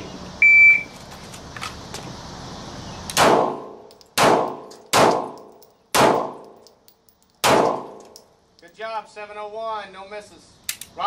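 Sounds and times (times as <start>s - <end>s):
pistol shots with metallic ringing: 3.1s - 8.3s.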